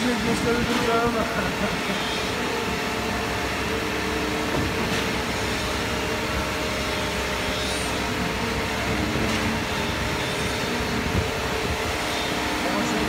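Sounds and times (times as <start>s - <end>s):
concrete pump mechanical hum: 0.0s - 13.0s.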